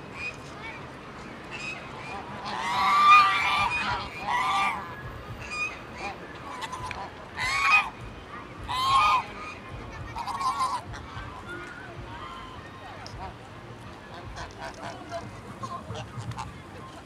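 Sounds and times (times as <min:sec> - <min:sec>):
geese honking: 0:01.6 - 0:08.0, 0:08.7 - 0:11.2.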